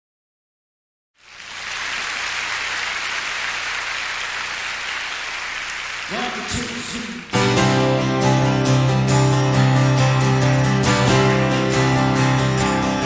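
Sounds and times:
audience applauding: 1.2 - 8.0.

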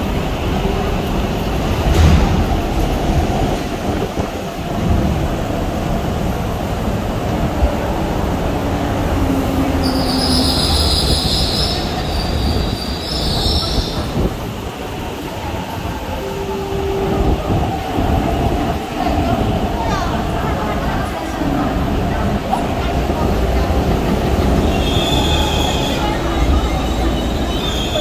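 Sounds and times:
train rail rumble: 0.0 - 28.0.

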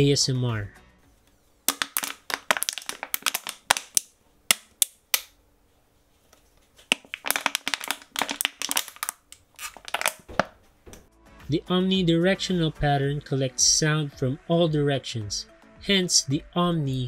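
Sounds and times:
plastic bottle crinkling: 1.7 - 5.0, 6.8 - 10.6.

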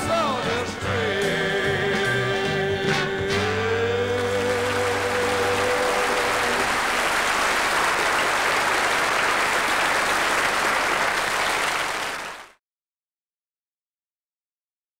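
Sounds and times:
audience applauding: 4.1 - 12.6.

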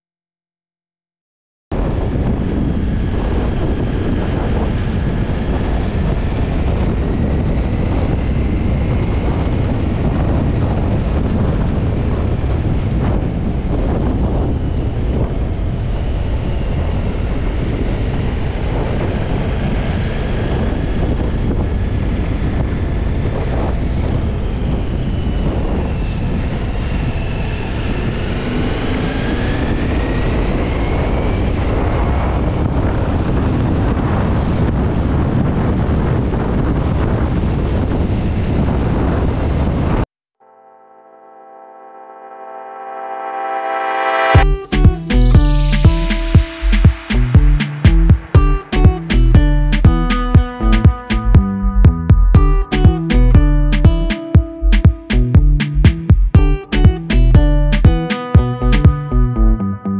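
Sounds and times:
wind rushing over microphone: 1.7 - 40.0
motorcycle engine whine: 1.9 - 32.8.

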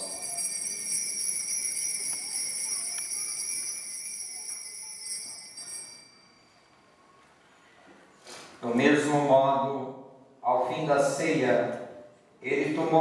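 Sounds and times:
altar bells ringing: 0.0 - 6.8.

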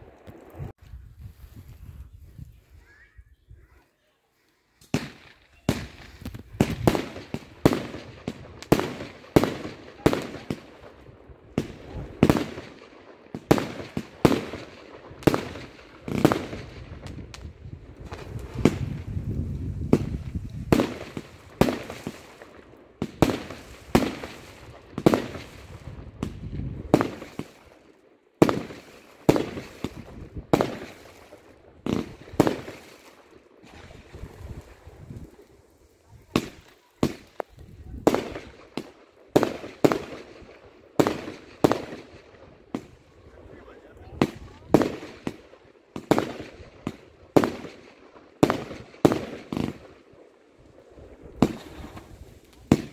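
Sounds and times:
fireworks bursting: 4.8 - 52.9.

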